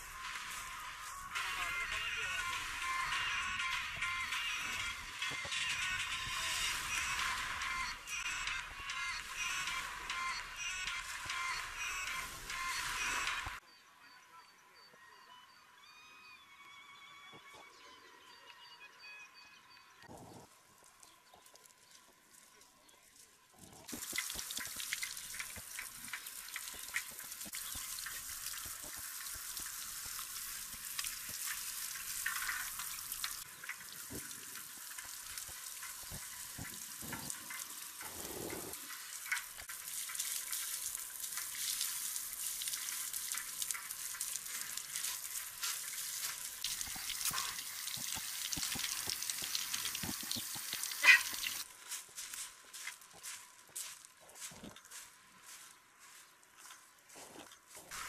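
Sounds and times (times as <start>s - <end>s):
shower water spraying: 0.0s - 13.6s, 23.9s - 51.7s.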